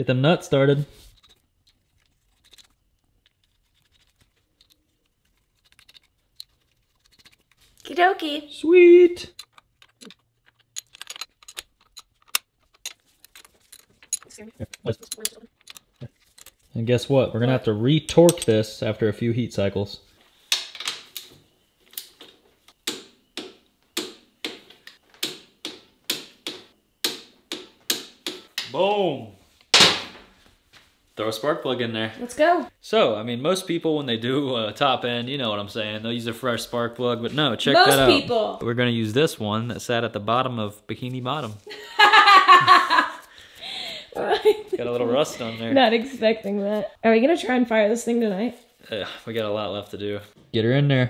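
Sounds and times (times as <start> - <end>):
faint metallic clicks and scrapes: 1.1 - 7.9.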